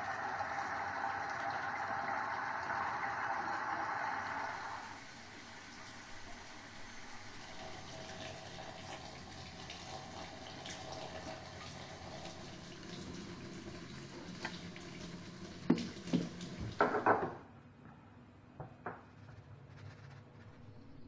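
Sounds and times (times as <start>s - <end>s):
water running from a tap: 0.0s - 17.3s
fish knocking on counter: 16.8s - 17.4s.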